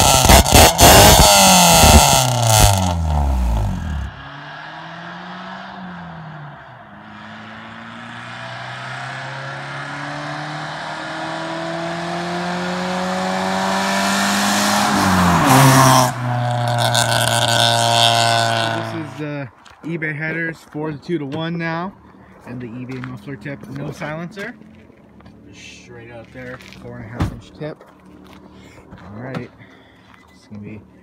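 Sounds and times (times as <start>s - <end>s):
car engine accelerating: 0.0s - 19.3s.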